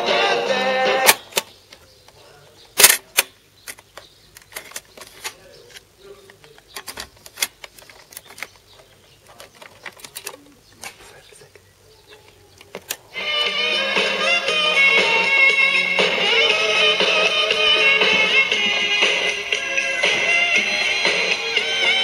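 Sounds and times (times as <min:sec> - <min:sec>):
music from cassette recorder: 0:00.0 - 0:01.4, 0:13.1 - 0:22.0
cassette being handled: 0:02.8 - 0:11.0.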